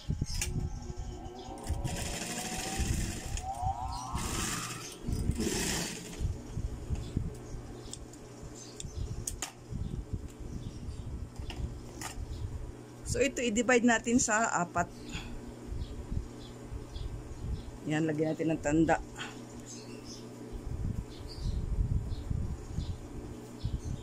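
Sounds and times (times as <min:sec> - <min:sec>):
sewing machine motor whine: 0:01.5 - 0:06.2
sewing machine stitching patter: 0:01.8 - 0:03.3, 0:04.2 - 0:06.2.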